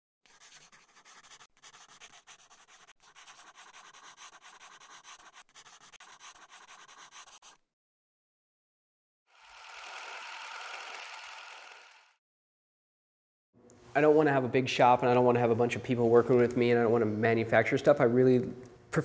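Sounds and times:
marker scratching on paper: 0.2 - 7.6.

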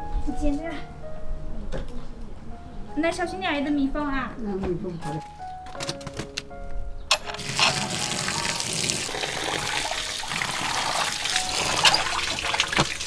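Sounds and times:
water splashing into concrete basin: 7.4 - 13.0.

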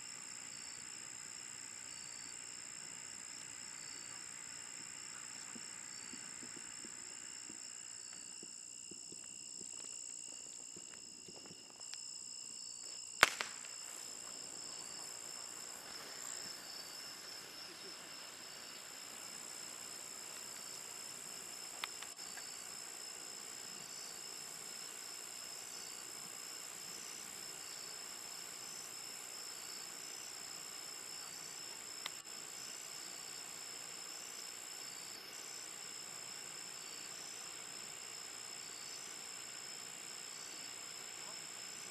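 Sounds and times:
crickets chirping: 0.0 - 41.9
sharp pop: 13.2 - 13.8.

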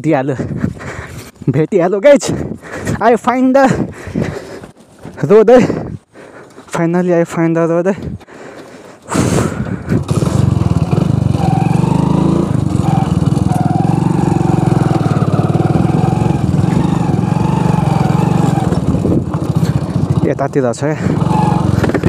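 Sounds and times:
motorcycle engine running: 9.1 - 22.0.

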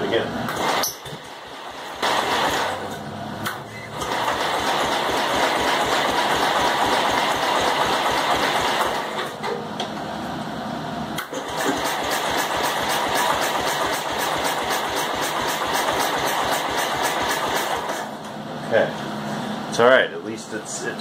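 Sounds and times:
engine cranking: 11.2 - 18.1.

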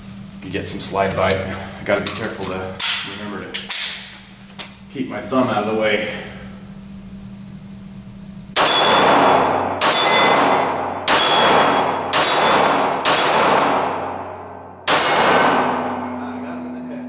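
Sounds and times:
pistol shots with echo: 8.6 - 16.2
bullets ringing on steel targets: 8.6 - 17.0.

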